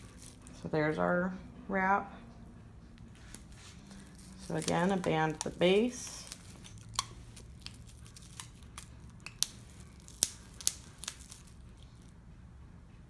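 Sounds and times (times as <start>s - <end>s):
small clicks and crinkles: 0.0s - 0.6s, 3.2s - 12.1s
rubber band snaps: 6.2s - 11.6s.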